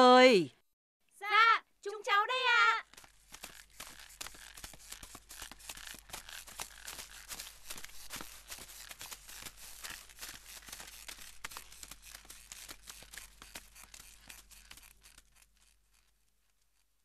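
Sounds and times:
footsteps and creaking shoulder poles: 2.6s - 17.0s.

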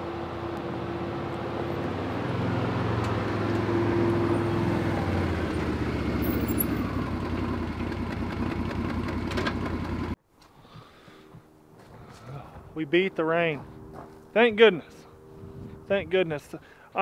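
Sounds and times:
utility vehicle engine running: 0.0s - 10.2s.

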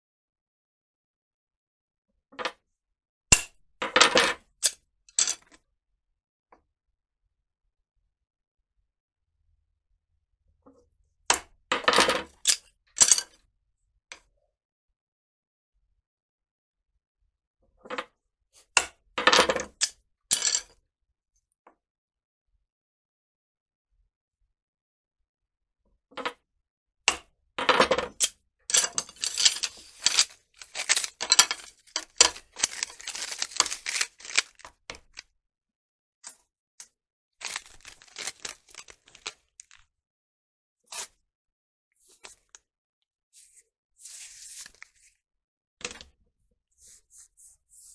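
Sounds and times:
bamboo cracking as it splits: 30.1s - 34.7s, 37.4s - 39.8s.

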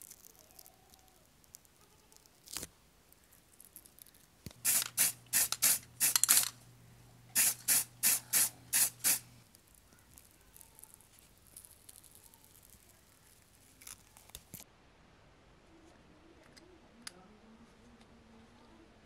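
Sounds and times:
paint spray hissing bursts: 4.5s - 6.5s, 7.3s - 9.3s
steady low hum: 4.5s - 10.0s.

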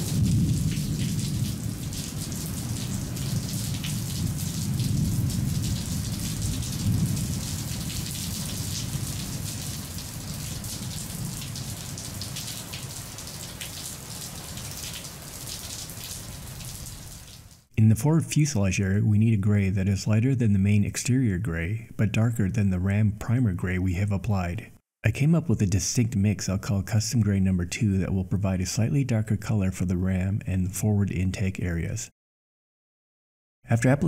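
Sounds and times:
low rolling thunder: 0.0s - 13.1s
steady rain: 0.0s - 17.7s.

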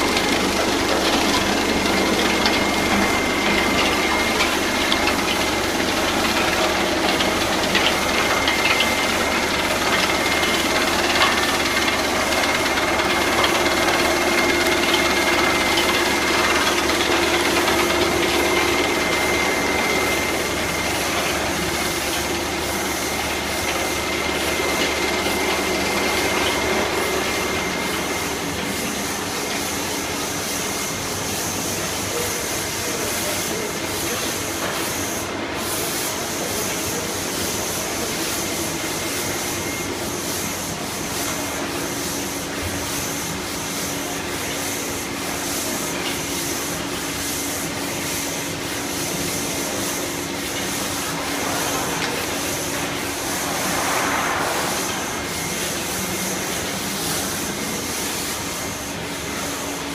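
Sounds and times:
high steady whine: 0.0s - 31.1s, 48.4s - 58.9s
packing machinery running: 0.0s - 59.9s.

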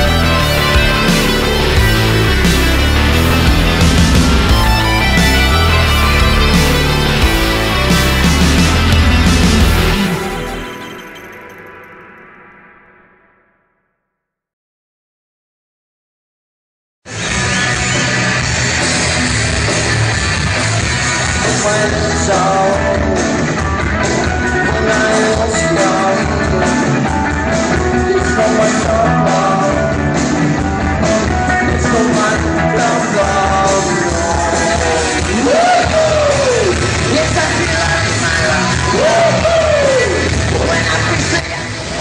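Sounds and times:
electric guitars: 0.0s - 12.2s, 17.1s - 42.0s
drums: 0.0s - 12.9s, 17.1s - 42.0s
lead singer singing: 21.4s - 41.6s.

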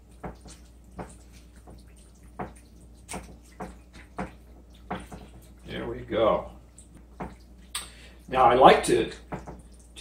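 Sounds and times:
wet squelches of raw chicken: 0.0s - 10.0s.

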